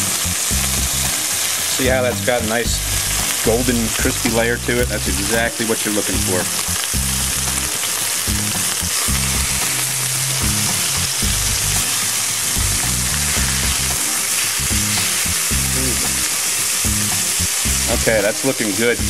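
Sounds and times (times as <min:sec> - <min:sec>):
fish sizzling in oil: 0:00.0 - 0:19.0
spatula scraping in pan: 0:05.2 - 0:19.0.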